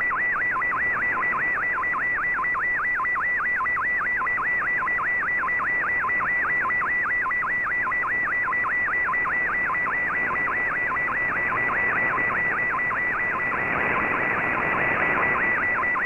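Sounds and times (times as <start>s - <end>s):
warbling radio data tone: 7.5s - 16.0s.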